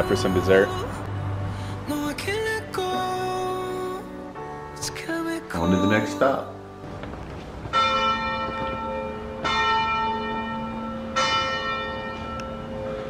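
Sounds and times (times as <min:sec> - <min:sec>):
church bell tolling: 0:06.8 - 0:13.0.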